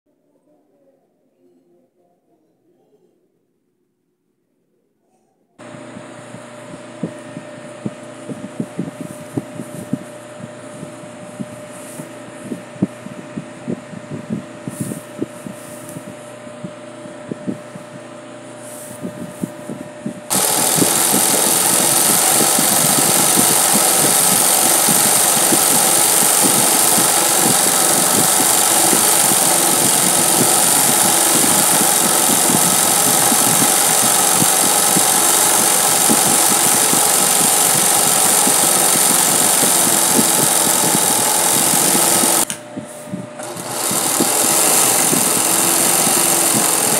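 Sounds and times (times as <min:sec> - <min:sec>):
sewing machine needle clatter: 0:20.3 - 0:42.5, 0:43.4 - 0:46.9.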